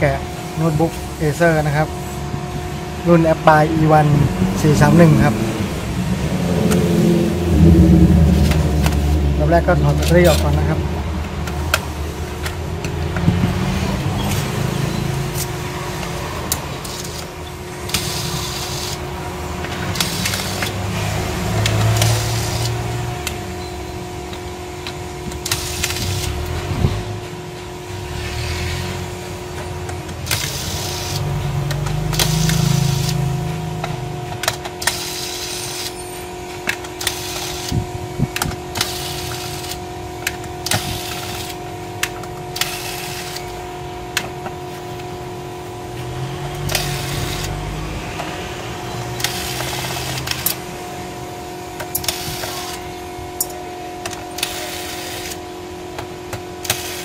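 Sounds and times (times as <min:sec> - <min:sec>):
steady hum: 0:00.0 - 0:57.0
electric screwdriver whirring: 0:14.3 - 0:19.1, 0:19.8 - 0:23.4, 0:24.3 - 0:27.0, 0:29.6 - 0:43.6, 0:46.1 - 0:50.7.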